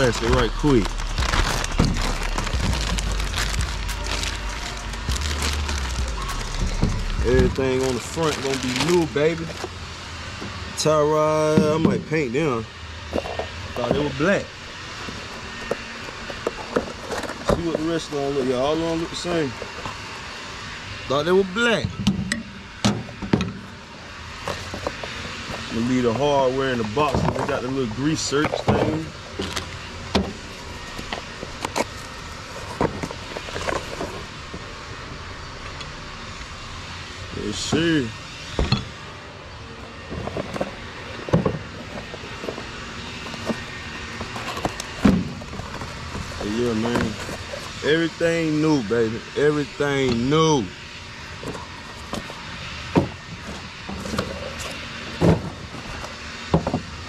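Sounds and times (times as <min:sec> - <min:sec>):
cardboard boxes being opened: 0:00.0 - 0:09.8, 0:15.1 - 0:18.2, 0:30.3 - 0:34.4, 0:40.1 - 0:47.8, 0:51.4 - 0:56.8
plastic bag rustling: 0:00.0 - 0:09.8
steady background noise: 0:00.0 - 0:57.0
steady low hum: 0:00.0 - 0:57.0.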